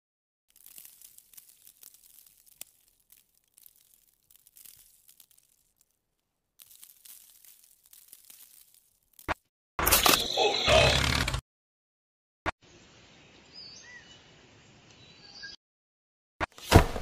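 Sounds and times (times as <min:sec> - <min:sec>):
gravel rustling: 0:00.5 - 0:09.4.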